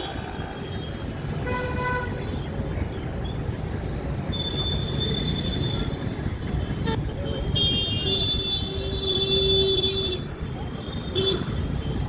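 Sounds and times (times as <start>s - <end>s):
motorbikes idling: 0.0s - 12.0s
traffic rumble: 0.0s - 12.0s.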